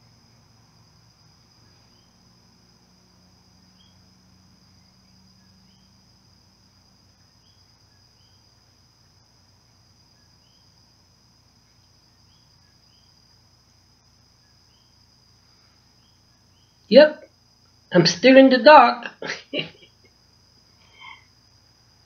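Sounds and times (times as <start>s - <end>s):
insect chirps: 0.0s - 22.0s
insect trilling: 14.3s - 22.0s.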